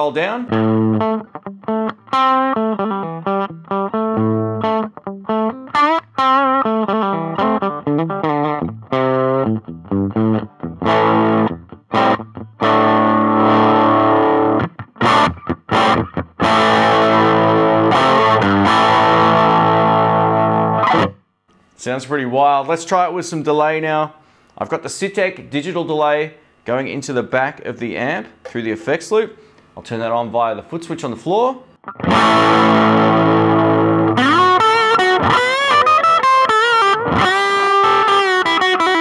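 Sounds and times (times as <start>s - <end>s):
electric guitar through amp: 0.0s - 21.2s, 31.8s - 39.0s.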